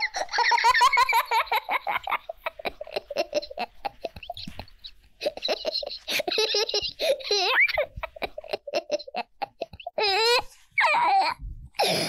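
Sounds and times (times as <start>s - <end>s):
small child laughing: 0.0s - 11.4s.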